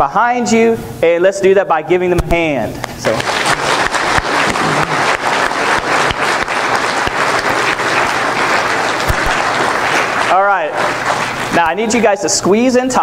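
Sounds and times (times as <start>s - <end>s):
crowd applauding: 3.0s - 12.1s.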